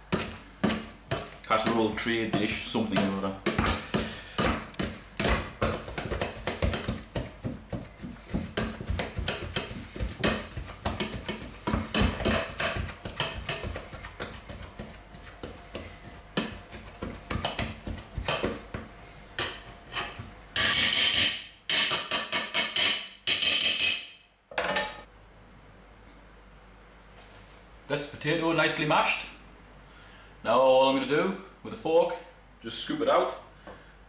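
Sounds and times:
masher scraping pan: 0.0s - 18.6s, 19.4s - 23.0s
potato masher knocking on pan: 0.0s - 22.8s.

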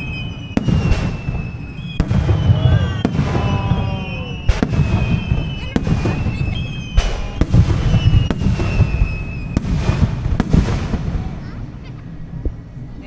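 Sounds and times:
firework whistles sliding down: 0.0s - 10.4s
firework shells bursting: 0.0s - 11.5s.

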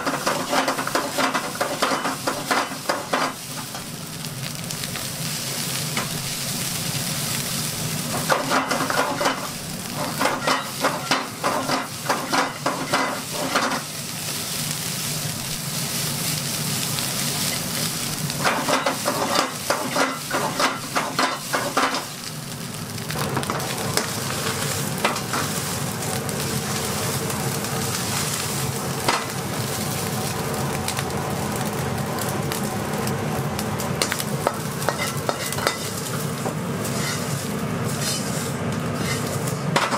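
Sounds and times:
spatula scraping a wok: 0.0s - 3.4s, 8.1s - 14.5s, 18.4s - 22.1s, 34.8s - 36.2s, 36.8s - 39.9s
rice sizzling in a wok: 0.0s - 39.9s.

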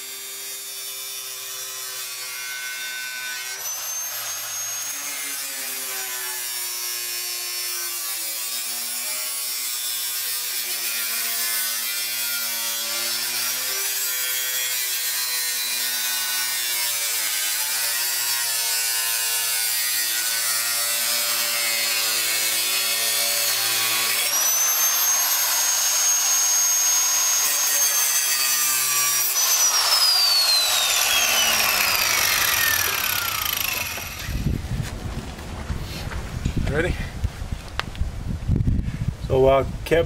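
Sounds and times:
die grinder grinding metal: 0.0s - 34.6s
high-pitched whine: 29.5s - 34.6s.

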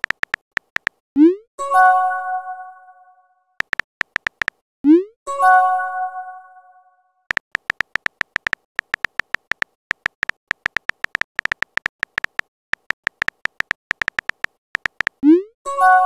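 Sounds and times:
keyboard tap clicks: 0.0s - 1.0s, 3.6s - 4.6s, 7.3s - 15.2s.

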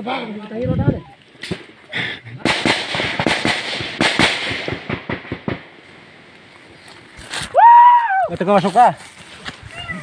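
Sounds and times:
small-arms gunfire: 2.5s - 5.7s.

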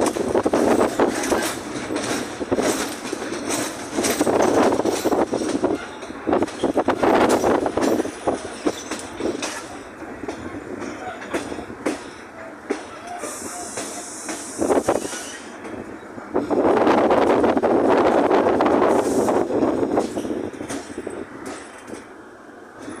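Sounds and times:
train wheels clacking over rail joints: 0.0s - 23.0s
hiss: 12.8s - 15.6s, 18.9s - 19.6s.

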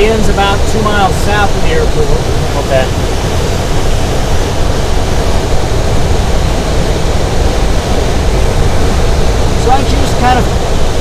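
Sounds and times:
airflow rushing around canopy: 0.0s - 11.0s.

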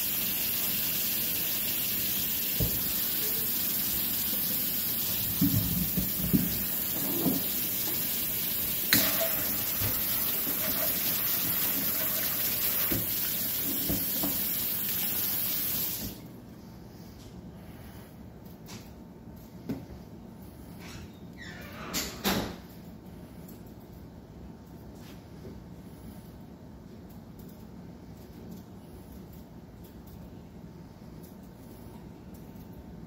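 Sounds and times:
faucet running into steel sink: 0.0s - 16.2s.

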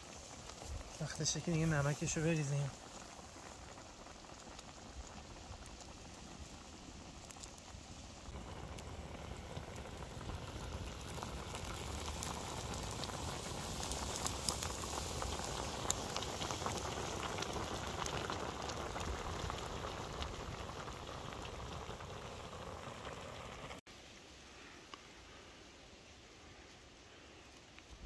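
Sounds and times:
broth boiling and bubbling: 0.0s - 28.0s
small scattered pops: 2.3s - 7.9s.

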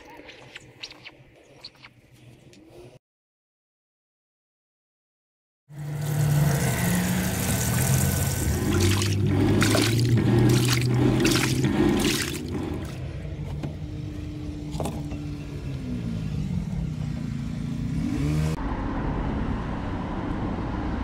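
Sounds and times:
washing machine motor hum: 5.8s - 13.8s
water churning and sloshing: 6.0s - 13.3s.

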